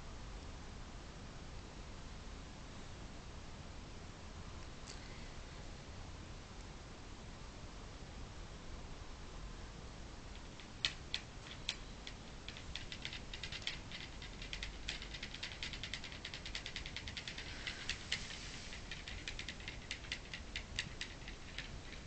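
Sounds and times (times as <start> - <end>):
dog claws tapping on wall: 10.4 - 22.0.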